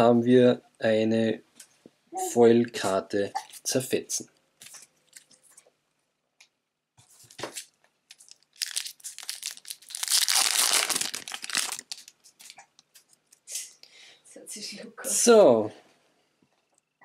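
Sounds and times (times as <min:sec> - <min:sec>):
plastic wrapper tearing and crinkling: 0:07.5 - 0:13.0.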